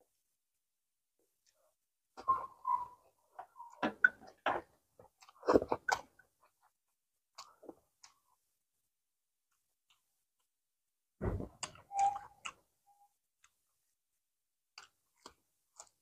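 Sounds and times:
chewing with wet smacks: 5.0s - 8.4s, 11.6s - 12.6s, 14.7s - 16.0s.

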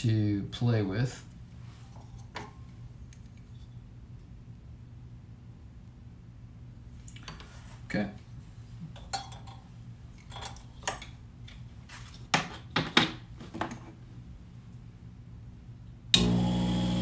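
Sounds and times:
lathe motor humming: 16.2s - 17.0s.

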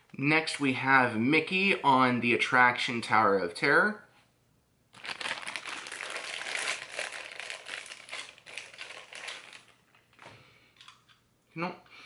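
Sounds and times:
plastic bag crinkling and tearing: 5.0s - 10.2s.

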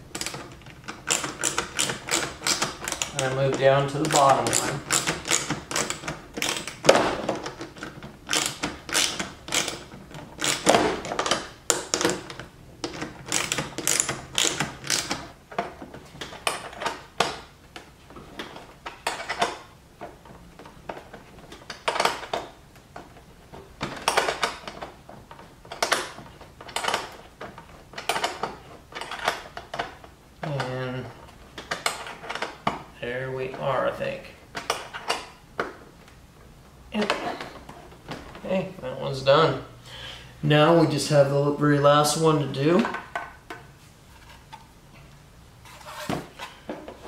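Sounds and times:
hand ratchet clicking: 0.1s - 15.3s.

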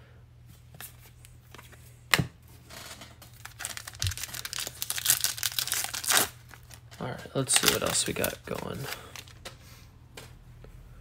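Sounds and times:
plastic wrapper tearing and crinkling: 3.2s - 9.4s.

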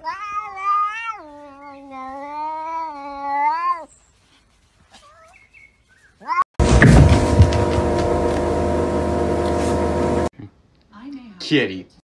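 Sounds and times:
cat yowling: 0.0s - 3.9s.

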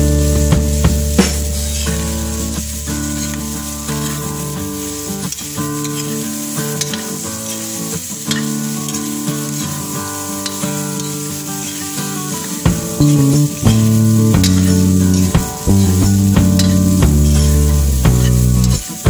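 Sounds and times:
vegetables sizzling in a wok: 0.0s - 19.0s
background music: 12.6s - 19.0s.

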